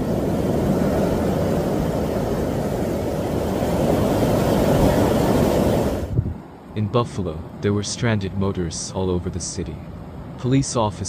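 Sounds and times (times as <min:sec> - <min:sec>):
blizzard wind buffeting microphone: 0:00.0 - 0:06.8.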